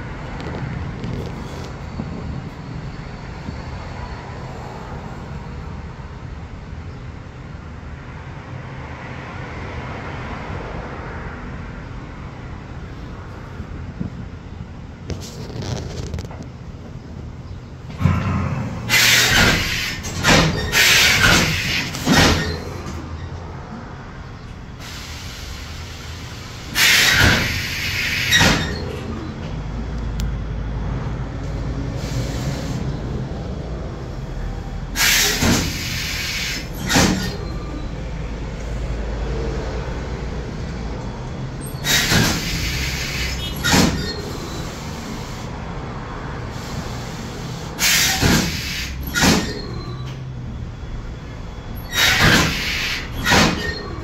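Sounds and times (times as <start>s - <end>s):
steam press hissing: 18.8s - 23.0s, 24.8s - 29.0s, 35.0s - 37.6s, 41.6s - 45.5s, 46.5s - 49.8s, 51.8s - 54.0s.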